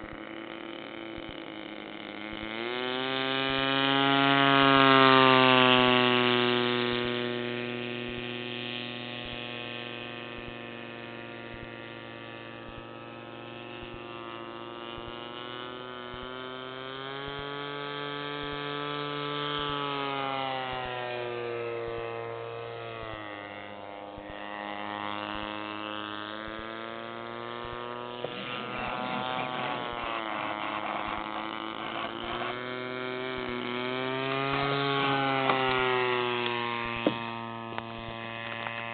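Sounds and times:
crackling noise: 0:00.0 - 0:02.6, 0:28.0 - 0:38.9
propeller plane engine buzzing: 0:00.0 - 0:38.9.

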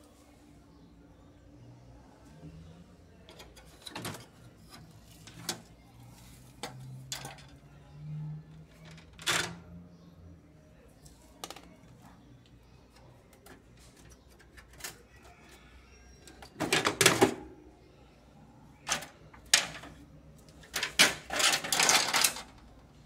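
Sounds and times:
plastic scraping and clattering: 0:03.3 - 0:07.6, 0:16.3 - 0:17.4, 0:18.9 - 0:22.7.

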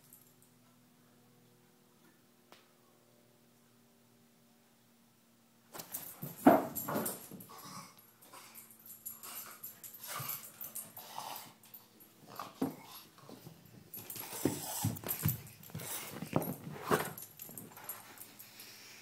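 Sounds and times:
dog play noises: 0:05.7 - 0:18.9.

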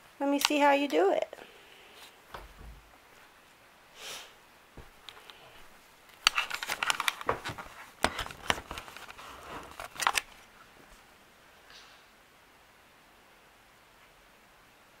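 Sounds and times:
rustling and handling noise: 0:00.2 - 0:03.7, 0:04.7 - 0:11.2.

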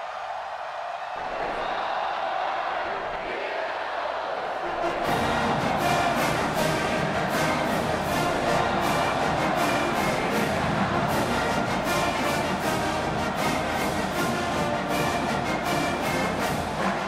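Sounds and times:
stadium crowd: 0:00.0 - 0:17.0
brass band music with drumbeat: 0:04.7 - 0:17.0.

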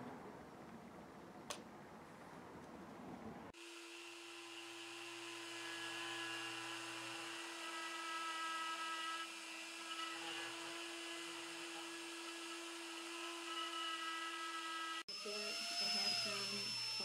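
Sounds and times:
rotary tool grinding metal: 0:04.6 - 0:17.0.

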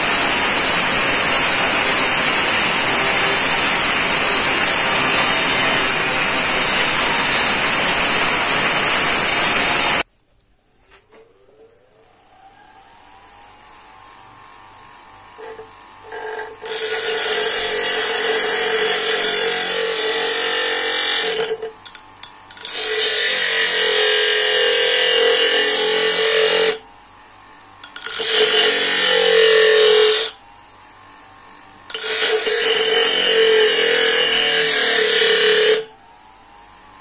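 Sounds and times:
bench grinder motor hum: 0:00.0 - 0:10.0, 0:11.8 - 0:37.0
wood grinding on stone wheel: 0:15.4 - 0:26.8, 0:27.8 - 0:30.4, 0:31.9 - 0:35.9.

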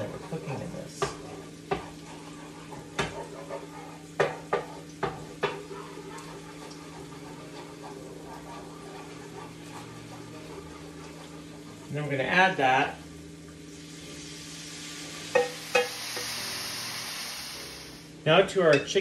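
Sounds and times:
wooden spoon scraping a pan: 0:00.0 - 0:12.6.

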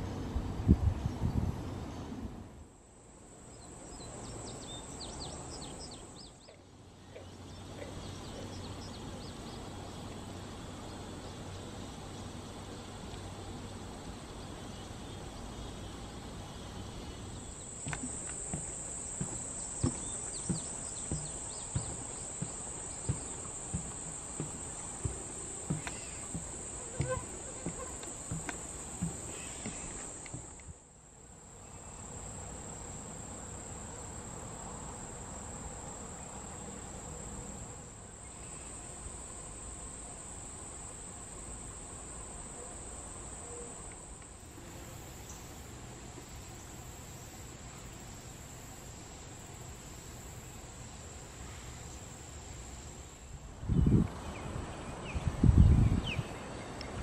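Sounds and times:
high-pitched insect chorus: 0:02.8 - 0:56.8
light footstep thumps: 0:17.7 - 0:30.6.

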